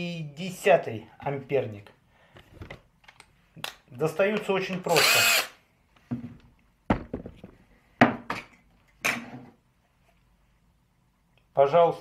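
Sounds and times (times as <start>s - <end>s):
plastic objects knocked on tabletop: 6.1s - 9.3s.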